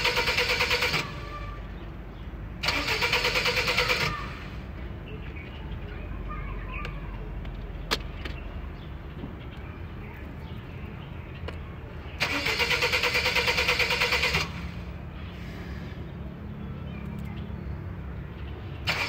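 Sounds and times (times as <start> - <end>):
car starter motor cranking: 0.0 - 1.4, 2.6 - 4.6, 12.2 - 14.8.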